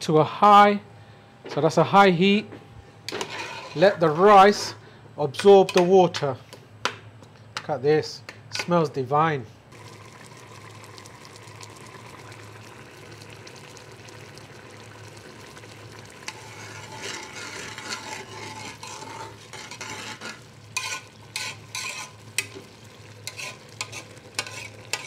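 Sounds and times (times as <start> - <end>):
steady low hum: 0.0 - 25.0
metal spoon stirring rice in pot: 16.2 - 22.6, 23.2 - 25.0
spoon clicking and scraping pot: 16.3 - 22.6, 23.2 - 25.0.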